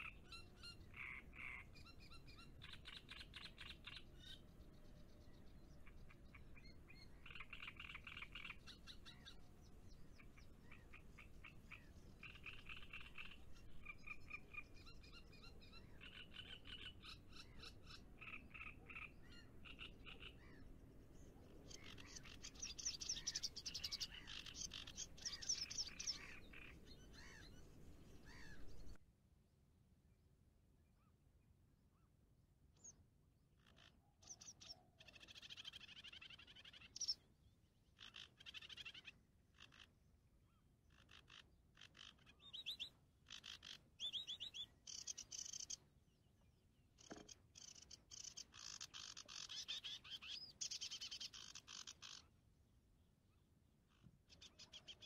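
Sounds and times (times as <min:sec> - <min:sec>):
frogs croaking: 0:00.9 - 0:01.8, 0:10.3 - 0:15.1, 0:21.7 - 0:27.4, 0:40.9 - 0:45.8, 0:47.0 - 0:52.3.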